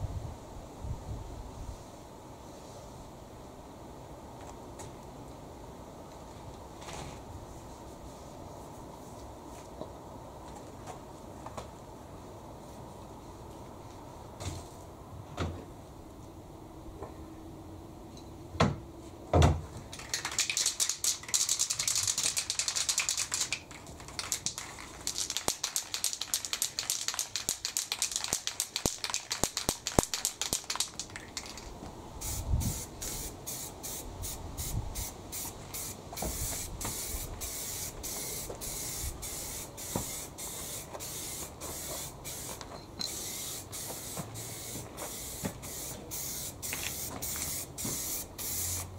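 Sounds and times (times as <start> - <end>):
paint spraying: 20.0 - 48.9
short spray bursts: 20.3 - 31.6, 32.2 - 48.9.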